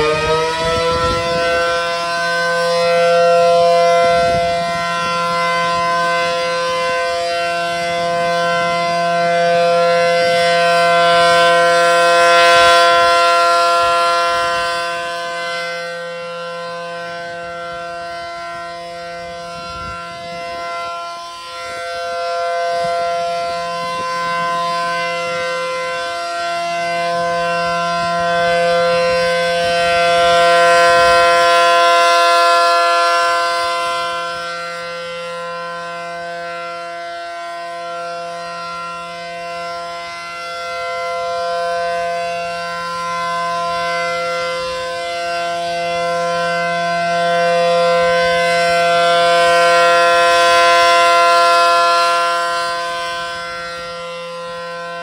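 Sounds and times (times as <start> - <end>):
rotating warning siren: 0.0 - 55.0.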